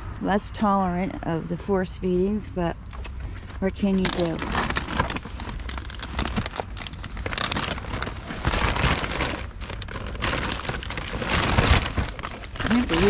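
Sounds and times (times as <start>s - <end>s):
plastic bags rustling and crinkling: 3.4s - 13.0s.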